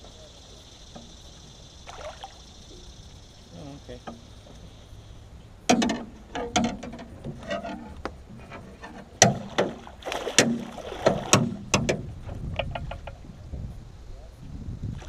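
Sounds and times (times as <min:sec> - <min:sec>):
knocks and clanks on metal boat: 0:03.8 - 0:04.7, 0:05.6 - 0:13.3
fish thrashing and splashing: 0:09.0 - 0:11.7.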